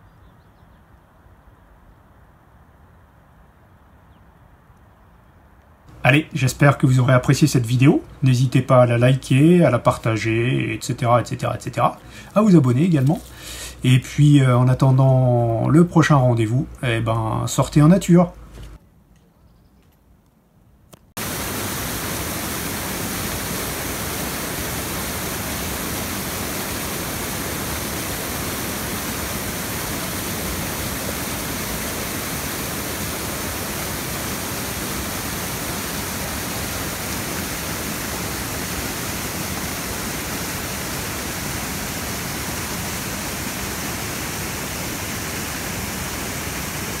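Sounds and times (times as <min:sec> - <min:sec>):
water rushing over rocks: 0:21.2 - 0:47.0.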